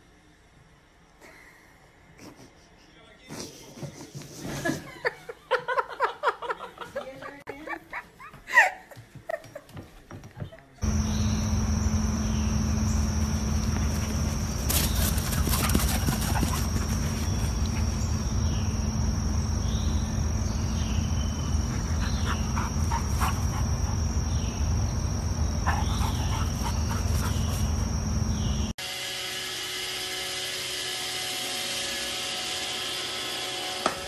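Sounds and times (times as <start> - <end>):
high insect drone: 10.8 - 28.7
low steady hum: 10.8 - 28.8.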